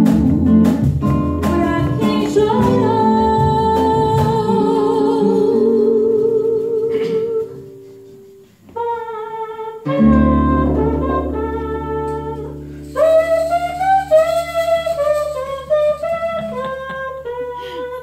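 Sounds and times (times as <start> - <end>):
acoustic guitar: 0.0 - 18.0
woman singing with vibrato: 1.4 - 7.8.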